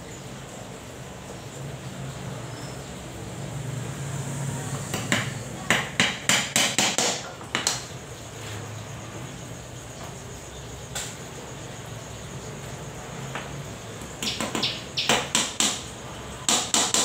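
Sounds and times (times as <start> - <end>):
hammer striking wood: 4.9 - 7.8, 15.1 - 15.8, 16.5 - 17.0.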